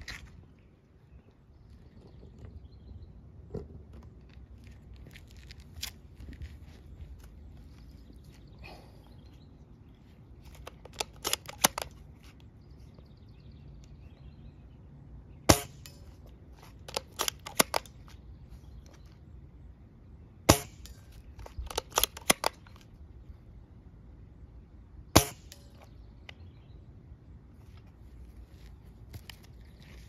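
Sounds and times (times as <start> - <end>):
rifle bolt clicks: 10.5 - 12.0, 16.8 - 17.9, 21.4 - 22.9
airsoft rifle shot crack: 15.5 - 16.0, 20.5 - 21.0, 25.2 - 25.7.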